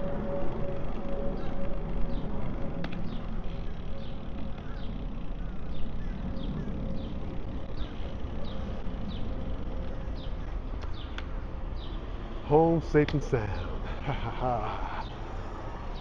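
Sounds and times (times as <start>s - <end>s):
bird chirping: 3.0s - 12.1s.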